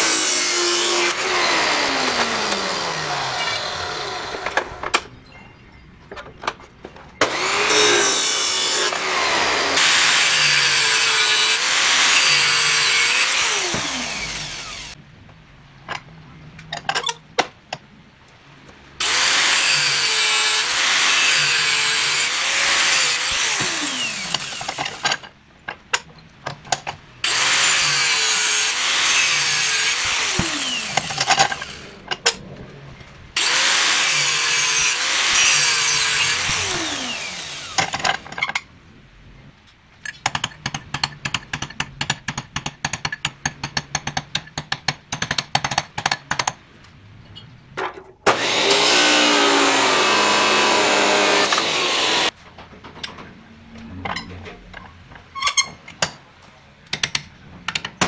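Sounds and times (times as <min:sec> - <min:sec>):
cut-off disc cutting steel pipe: 0:00.0 - 0:04.8, 0:07.2 - 0:15.0, 0:19.0 - 0:25.3, 0:27.2 - 0:32.4, 0:33.4 - 0:38.3, 0:48.3 - 0:52.4.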